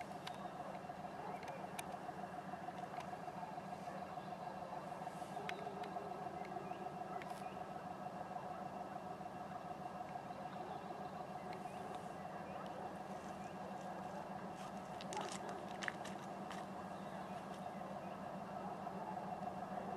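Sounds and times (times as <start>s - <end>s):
diesel locomotive engine drone: 0.0s - 19.9s.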